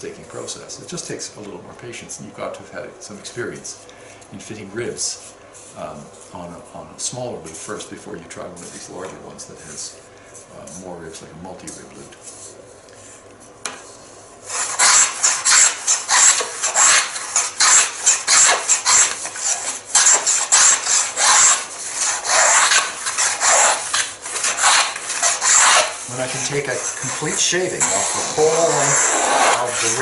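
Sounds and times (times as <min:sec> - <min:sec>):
hand plane cutting wood: 0:14.5 - 0:30.0.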